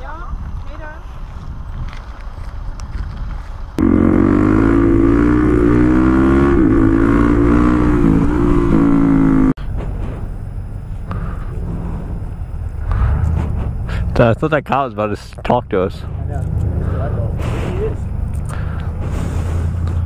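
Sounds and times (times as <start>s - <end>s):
quiet low rumble: 0.0s - 20.0s
motorcycle engine running: 3.8s - 20.0s.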